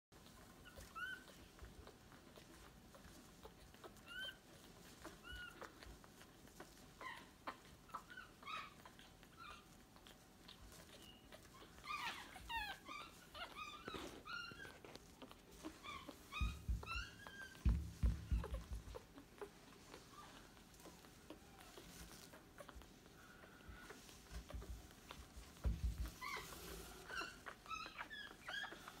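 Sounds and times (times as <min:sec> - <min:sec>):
puppies squeaking and whimpering: 0:00.2 - 0:29.0
low thumps: 0:16.4 - 0:18.9.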